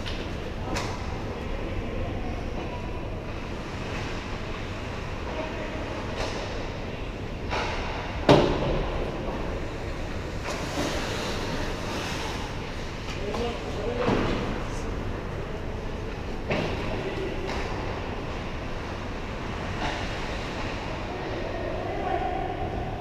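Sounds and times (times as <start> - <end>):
rink hall rumble: 0.0 - 23.0
skates scraping ice: 9.7 - 15.0.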